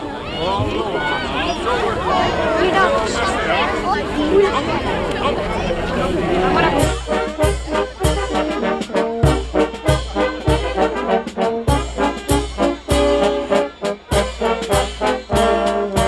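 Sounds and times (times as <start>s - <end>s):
brass band playing a march: 6.5s - 16.0s
bass drum beat: 6.8s - 16.0s.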